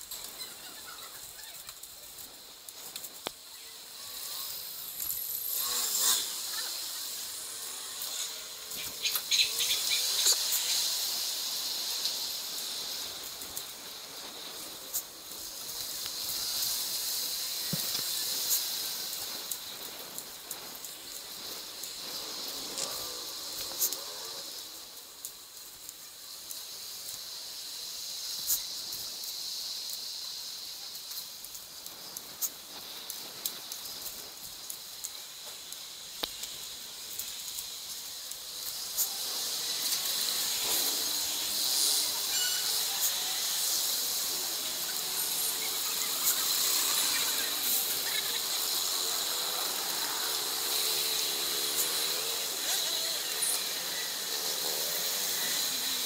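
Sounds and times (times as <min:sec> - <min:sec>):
steady hiss: 0:00.0 - 0:56.0
road traffic: 0:37.6 - 0:56.0.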